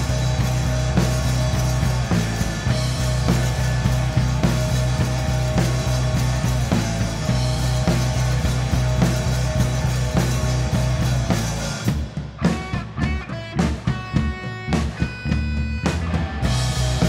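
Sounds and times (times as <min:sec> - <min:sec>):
bass guitar: 0:00.0 - 0:17.0
drum kit: 0:00.0 - 0:17.0
electric guitar: 0:00.0 - 0:17.0.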